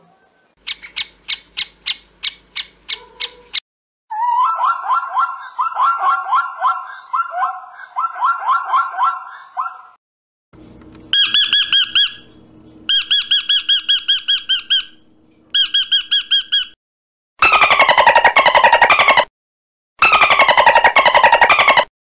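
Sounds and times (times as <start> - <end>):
macaws squeaking calls: 0.6 - 3.6, 11.2 - 15.0, 15.6 - 16.8, 20.0 - 21.8
zebra barking: 0.7 - 3.6
dolphin whistles: 11.2 - 12.3, 12.9 - 15.0, 15.6 - 16.8.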